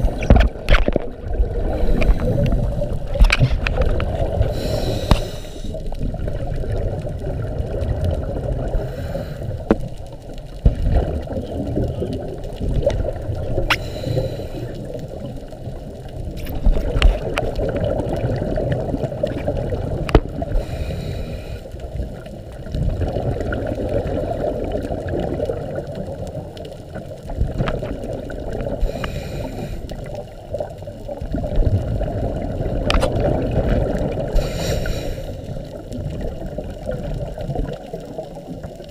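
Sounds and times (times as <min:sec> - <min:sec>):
diver exhaling bubbles: 0:00.0 - 0:09.8, 0:31.2 - 0:37.9
muffled underwater noise: 0:00.0 - 0:38.9.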